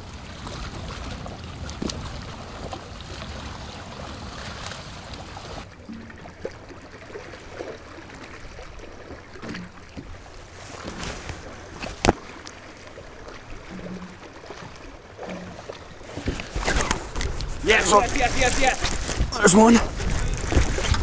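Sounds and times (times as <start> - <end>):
waves lapping against boat hull: 0.0 - 21.0.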